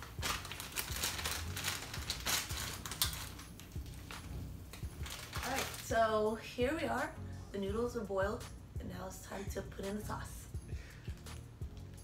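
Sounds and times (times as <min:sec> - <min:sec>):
plastic packet crinkling and tearing: 0:00.0 - 0:06.0.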